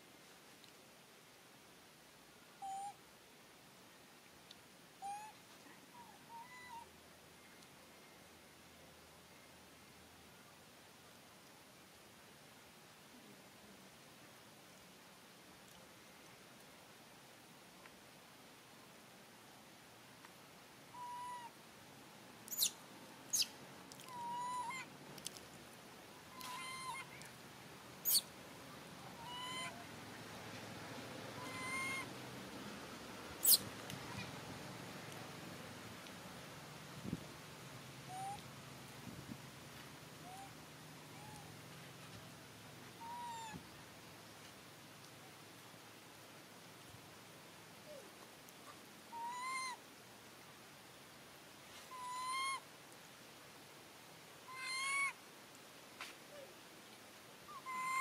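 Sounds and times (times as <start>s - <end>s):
macaque coo calls: 2.6s - 3.0s, 5.0s - 6.9s, 20.9s - 21.5s, 23.3s - 24.9s, 26.3s - 27.3s, 28.0s - 28.2s, 29.1s - 29.8s, 31.4s - 32.1s, 33.4s - 34.3s, 38.1s - 38.4s, 40.2s - 40.5s, 41.1s - 41.5s, 43.0s - 43.6s, 49.1s - 49.8s, 51.9s - 52.6s, 54.5s - 55.2s, 57.5s - 58.0s.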